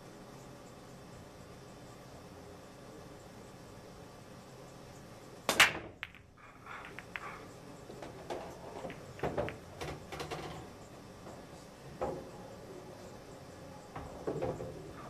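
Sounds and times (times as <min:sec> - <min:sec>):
cue ball cracking into racked balls: 0:05.5 - 0:10.6
pool balls clicking and knocking: 0:05.5 - 0:12.5, 0:13.9 - 0:15.0.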